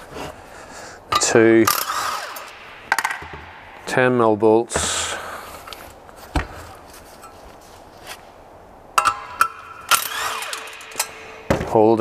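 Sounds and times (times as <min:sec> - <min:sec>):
cordless impact driver spinning: 0:09.9 - 0:11.3.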